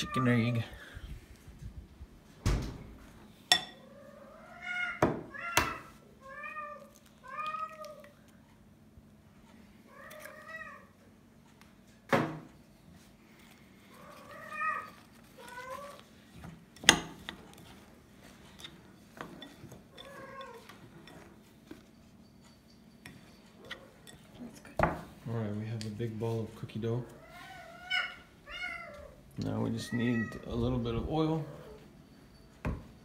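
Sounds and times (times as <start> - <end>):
cat meowing: 3.8 - 8.1, 14.0 - 16.1, 27.2 - 30.6
spoon scraping bowl: 13.9 - 24.7.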